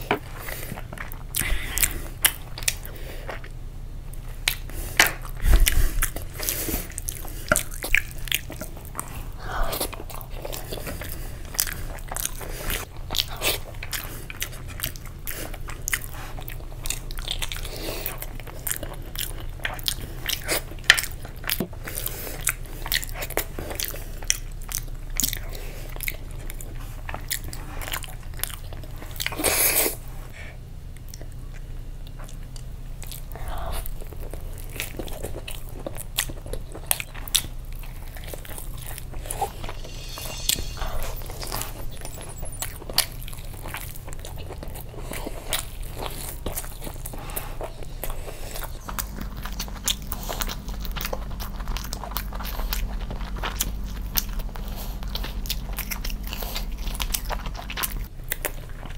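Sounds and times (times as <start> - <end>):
wet chewing and lip smacking: 0.0 - 30.1, 30.9 - 58.9
loud noisy sound: 39.2 - 42.4.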